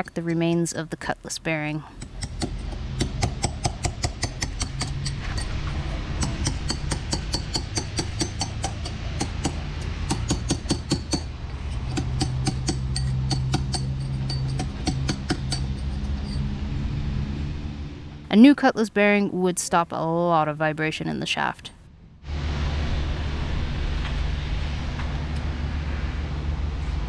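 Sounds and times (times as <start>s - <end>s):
steady low hum: 0.0s - 27.0s
hammer striking chisel on metal: 2.0s - 5.6s, 6.2s - 16.4s.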